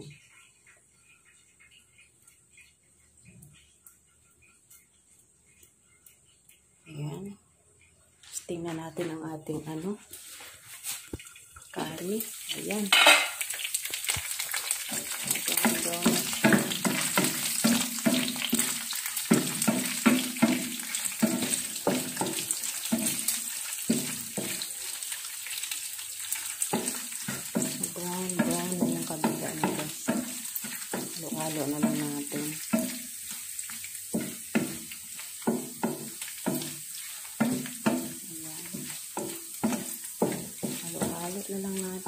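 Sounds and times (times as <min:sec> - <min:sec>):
meat sizzling in hot oil: 0:10.1 - 0:42.0
spatula scraping a pan: 0:14.3 - 0:41.8.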